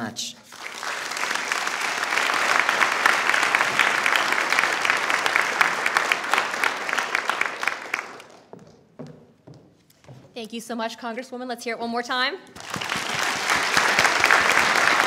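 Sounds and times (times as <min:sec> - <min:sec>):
audience applauding: 0:00.5 - 0:08.5, 0:12.6 - 0:15.0.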